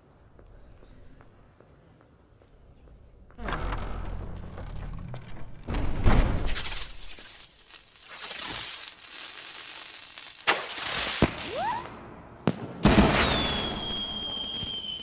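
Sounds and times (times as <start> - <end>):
fireworks hissing and crackling: 6.5 - 15.0
firework bangs: 7.7 - 15.0
firework whistle: 11.2 - 12.0, 12.9 - 15.0.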